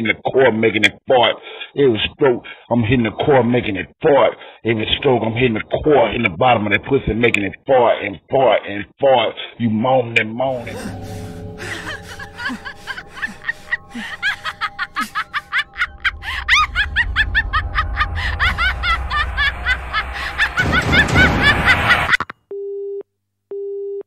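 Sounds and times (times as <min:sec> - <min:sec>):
music drone: 0:10.5 - 0:20.8
low rumble: 0:10.5 - 0:22.1
high-pitched giggling: 0:11.6 - 0:22.3
telephone busy tone beeps: 0:22.5 - 0:24.0.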